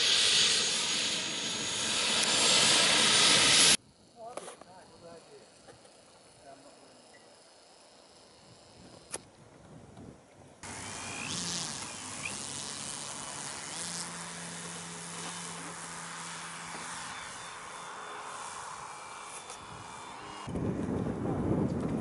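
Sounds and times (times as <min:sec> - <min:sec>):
model aeroplane engine running: 0:00.0 - 0:03.8, 0:10.6 - 0:22.0.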